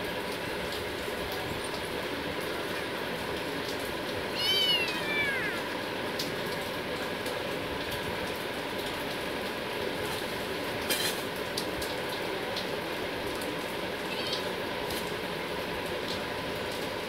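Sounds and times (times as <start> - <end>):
steady background noise: 0.0 - 17.0
kitten meowing: 4.3 - 5.8, 14.1 - 14.5.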